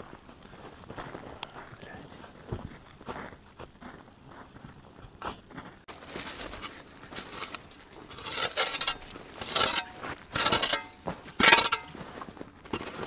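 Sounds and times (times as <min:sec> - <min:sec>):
shovel scraping frozen earth: 0:05.9 - 0:13.0.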